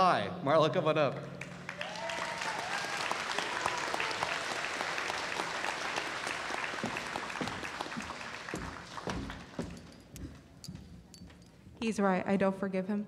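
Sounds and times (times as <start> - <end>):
audience applauding: 1.4 - 10.1.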